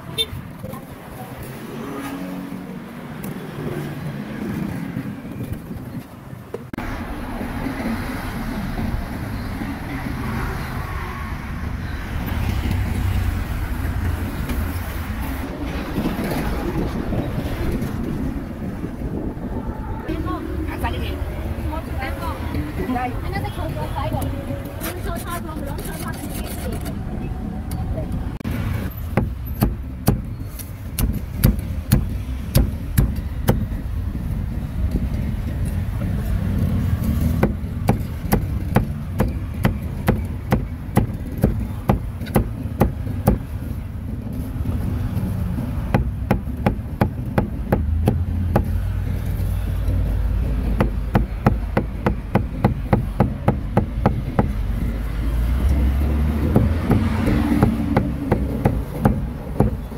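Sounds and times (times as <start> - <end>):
steady low rumble: 12.6 - 24.8
cleaver chopping meat on wood: 56.4 - 59.8.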